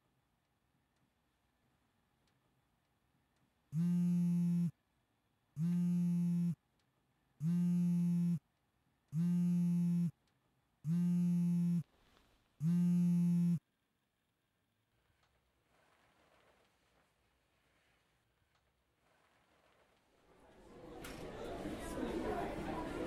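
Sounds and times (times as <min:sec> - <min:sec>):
alarm clock buzzy beeps: 0:03.8 - 0:04.7, 0:05.6 - 0:06.6, 0:07.4 - 0:08.4, 0:09.2 - 0:10.2, 0:10.9 - 0:11.8, 0:12.6 - 0:13.6.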